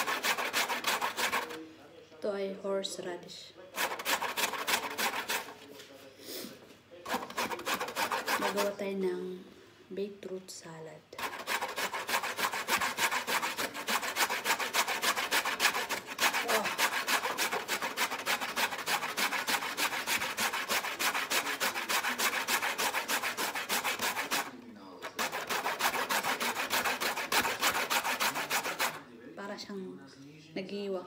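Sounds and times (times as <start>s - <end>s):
root grated on metal grater: 0.0s - 1.6s, 3.7s - 5.6s, 7.1s - 8.8s, 11.2s - 29.0s.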